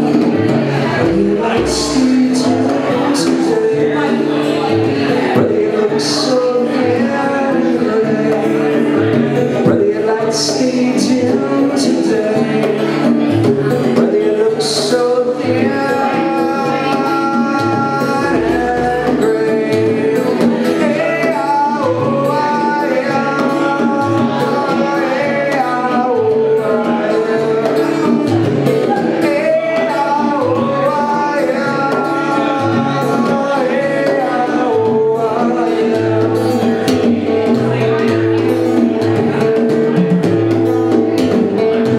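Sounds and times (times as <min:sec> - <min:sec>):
bongos: 0:00.0 - 0:41.9
guitar: 0:00.0 - 0:41.9
man singing: 0:00.0 - 0:41.9.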